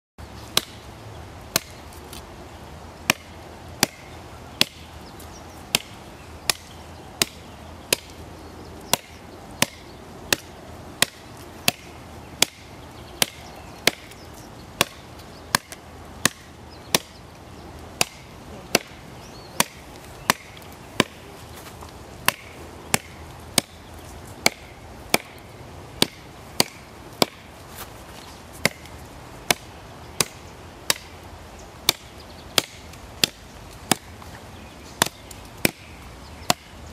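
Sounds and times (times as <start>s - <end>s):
knife chopping into tree trunk: 1.5s - 2.2s, 22.2s - 23.8s, 28.6s - 28.9s.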